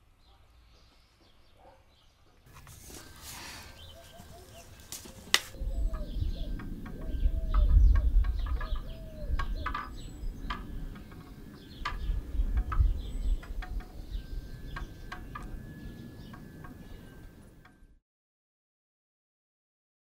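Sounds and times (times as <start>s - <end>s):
small birds chirping: 0.0s - 17.6s
low rumble: 5.5s - 17.6s.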